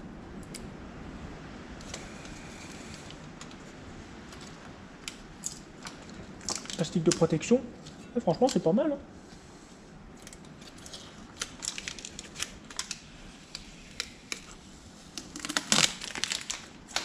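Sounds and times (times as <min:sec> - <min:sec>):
plastic film crinkling: 0:04.3 - 0:08.6, 0:10.4 - 0:17.0.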